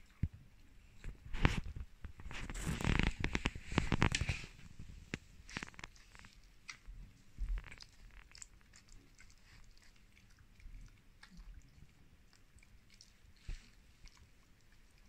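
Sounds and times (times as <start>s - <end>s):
dog gnawing bone: 5.1s - 15.0s.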